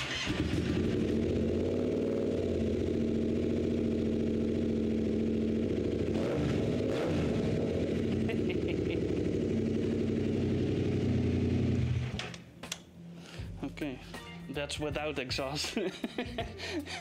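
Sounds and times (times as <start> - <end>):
motorcycle engine idling: 0.2 - 12.1.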